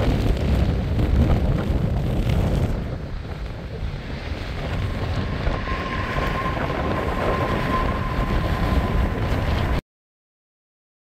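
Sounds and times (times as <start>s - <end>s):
wind rumbling on microphone: 0.0s - 9.8s
jet engines whining: 2.9s - 9.8s.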